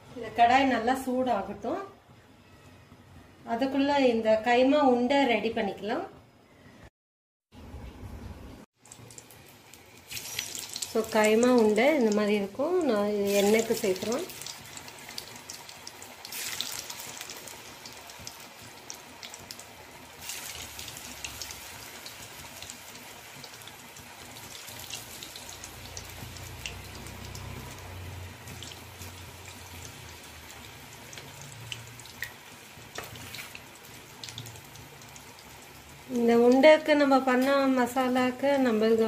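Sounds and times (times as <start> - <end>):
oil crackling and popping: 8.8 - 12.3, 13.2 - 36.6
meatballs deep-frying in oil: 8.8 - 39.0.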